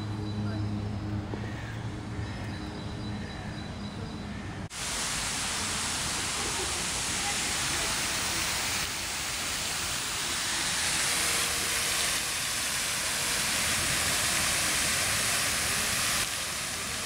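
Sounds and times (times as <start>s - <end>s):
fountain water splashing: 4.7s - 17.0s.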